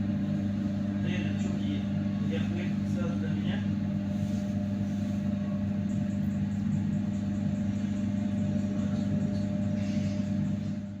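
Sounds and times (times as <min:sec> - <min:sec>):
diesel locomotive engine drone: 0:04.2 - 0:11.0.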